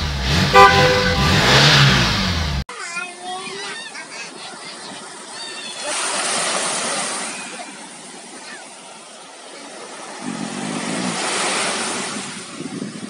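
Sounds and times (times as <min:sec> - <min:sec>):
ocean surf washing onto beach: 0:03.2 - 0:13.0.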